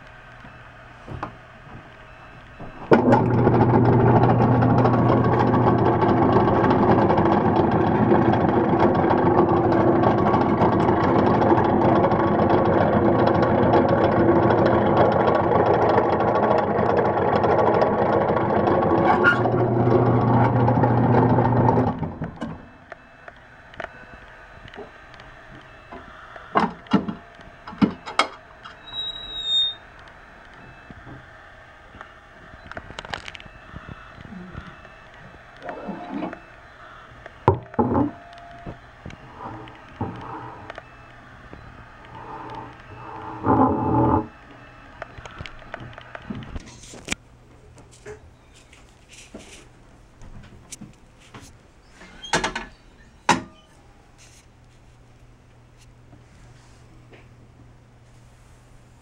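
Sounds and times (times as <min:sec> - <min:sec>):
short high squeak: 0:28.8 - 0:29.9.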